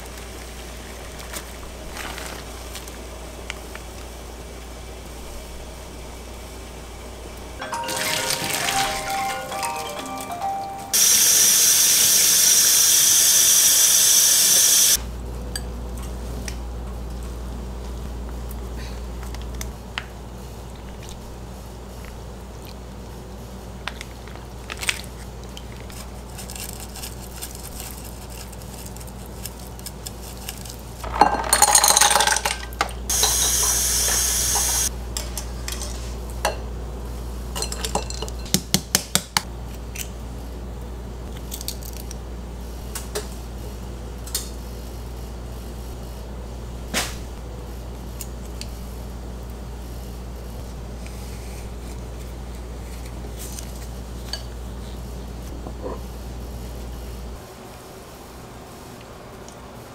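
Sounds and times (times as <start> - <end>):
dishes and utensils clinking: 7.6 - 10.7, 31.1 - 36.7, 37.6 - 38.6.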